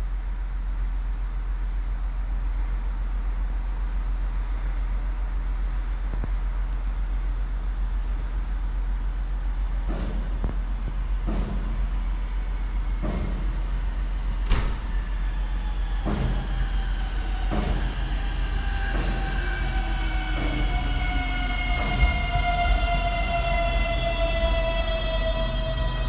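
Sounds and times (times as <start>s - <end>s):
train rumbling: 0.0s - 26.0s
falling train whine: 8.6s - 26.0s
train wheels knocking: 9.8s - 11.9s, 12.9s - 13.7s, 15.9s - 19.6s.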